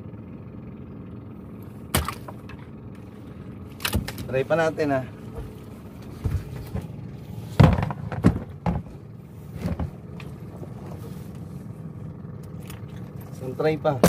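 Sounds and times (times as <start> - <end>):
low hum: 0.0 - 14.0
knocks against boat hull: 7.6 - 9.0.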